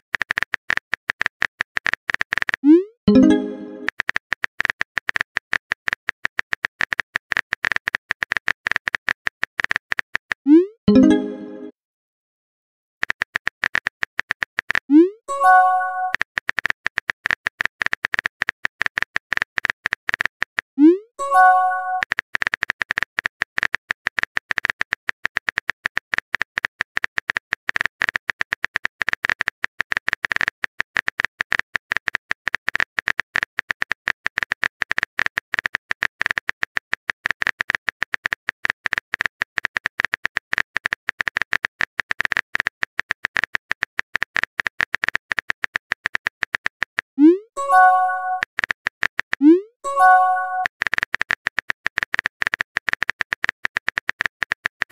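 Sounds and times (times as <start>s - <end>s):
keyboard typing clicks: 0.2s - 11.7s, 13.0s - 54.9s
message sent chime: 3.1s - 3.9s, 10.9s - 11.7s, 15.3s - 16.2s, 21.2s - 22.0s, 47.6s - 48.4s, 49.8s - 50.7s.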